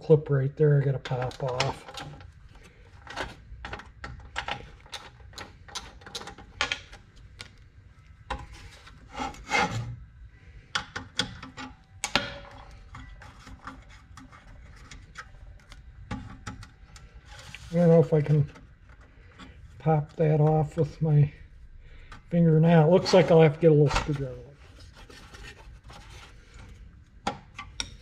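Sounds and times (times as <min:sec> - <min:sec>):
nut driver clicking and tapping: 0:27.2 - 0:28.0.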